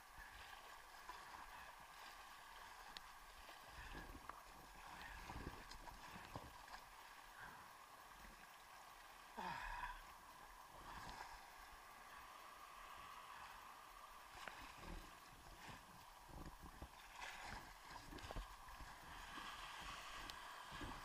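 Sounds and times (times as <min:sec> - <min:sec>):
water sloshing and lapping: 0:00.0 - 0:21.0
water swish: 0:00.0 - 0:21.0.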